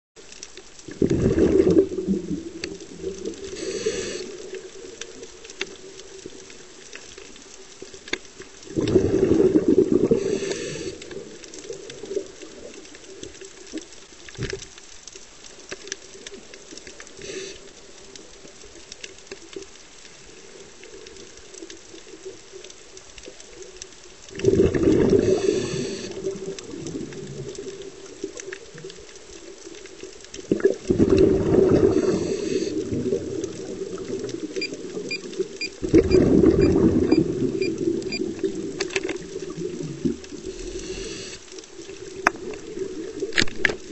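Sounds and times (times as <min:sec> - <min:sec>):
loud rumbles of exhaled bubbles: 0:00.8 - 0:06.6, 0:08.6 - 0:13.2, 0:24.3 - 0:29.0, 0:29.9 - 0:41.1, 0:41.7 - 0:43.9.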